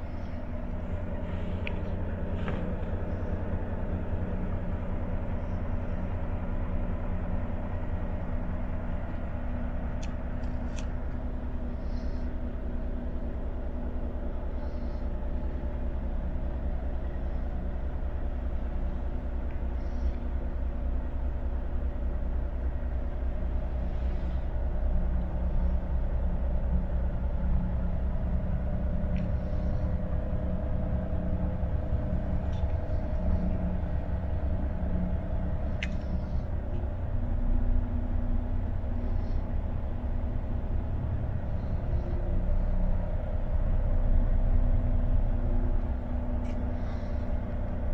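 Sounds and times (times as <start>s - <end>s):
diesel engine idling: 0.0s - 47.9s
faint clicks: 35.7s - 36.9s.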